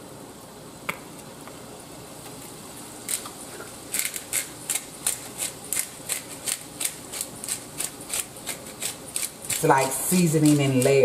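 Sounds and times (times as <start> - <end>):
pepper grinder grinding clicks: 3.9 - 9.7.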